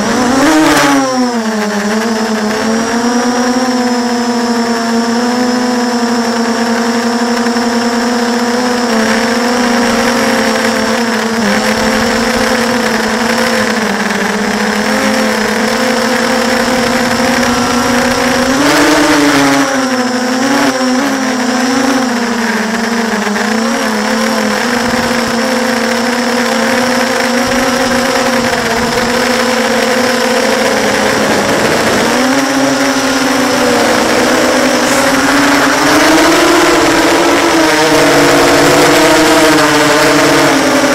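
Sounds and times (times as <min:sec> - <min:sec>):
drone motors whining: 0:00.0 - 0:40.9.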